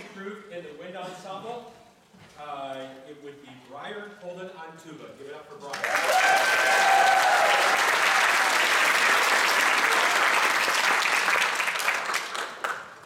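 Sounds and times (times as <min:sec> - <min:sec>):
crowd applauding: 0:05.7 - 0:13.0.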